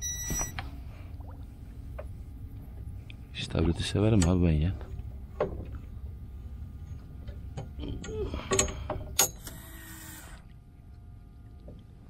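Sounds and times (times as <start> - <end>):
low steady rumble: 0.0 - 12.0
person muttering: 7.8 - 8.6.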